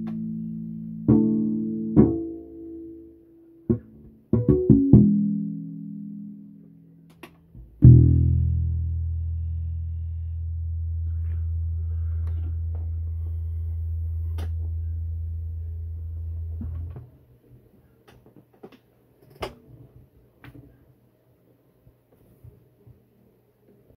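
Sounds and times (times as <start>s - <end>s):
electric bass low note ringing: 7.8s - 17.0s.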